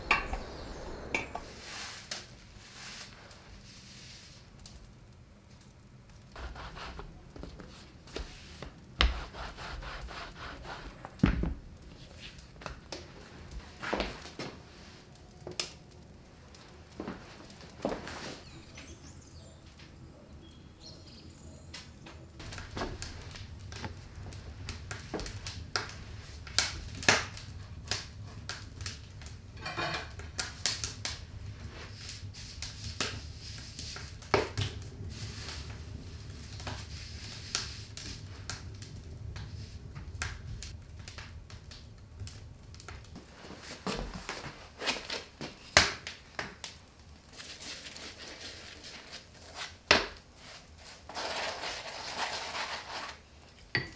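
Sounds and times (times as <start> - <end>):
low steady hum: 0.0 - 2.9.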